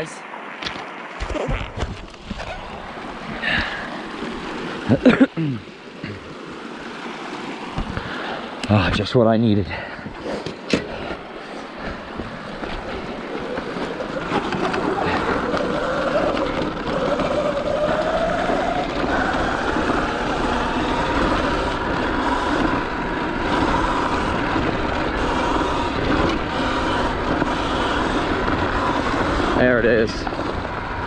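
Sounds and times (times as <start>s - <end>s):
tyres rolling: 11.8s - 31.0s
electric motor whining: 12.4s - 31.0s.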